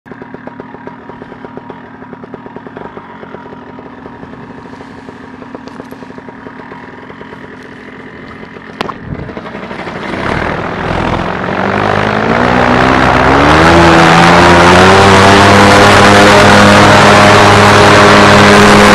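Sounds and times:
small motor running: 0.1 - 18.9.

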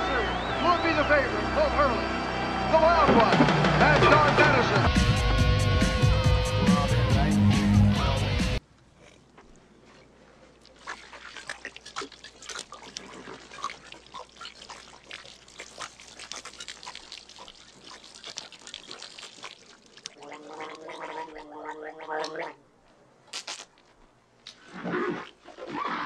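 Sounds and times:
water gurgling and glugging: 10.7 - 22.6
person gargling: 11.5 - 22.6.

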